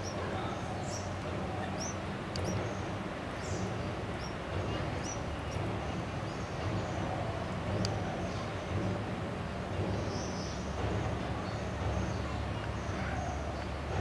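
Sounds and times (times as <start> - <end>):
nestlings chirping: 0.0 - 5.7
low background rumble: 0.0 - 14.0.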